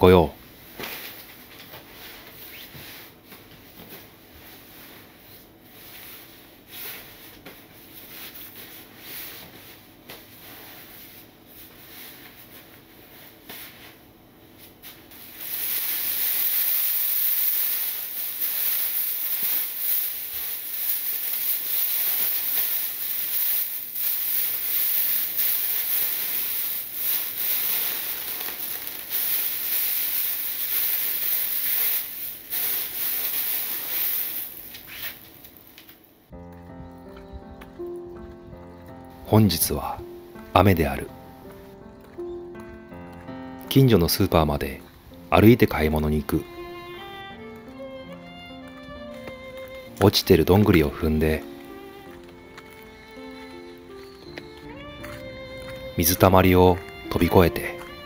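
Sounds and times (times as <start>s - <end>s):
comforter rustling: 1.8s - 35.7s
plastic bag crinkling: 14.7s - 36.4s, 45.6s - 58.0s.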